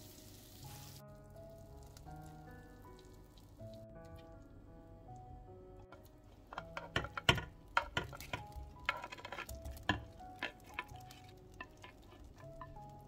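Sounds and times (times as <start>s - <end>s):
soft background music: 0.0s - 13.0s
spatula scraping glass dish: 6.5s - 12.8s.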